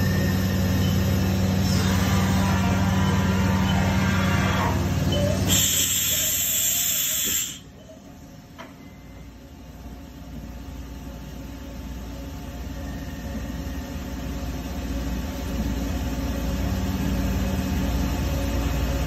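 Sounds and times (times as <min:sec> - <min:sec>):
machine humming: 0:00.0 - 0:07.4
compressed air hiss: 0:05.5 - 0:07.7.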